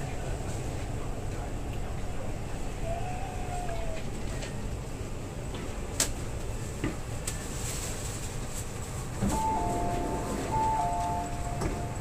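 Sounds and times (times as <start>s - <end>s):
train running rumble: 0.0s - 12.0s
two-note chime: 9.4s - 12.0s.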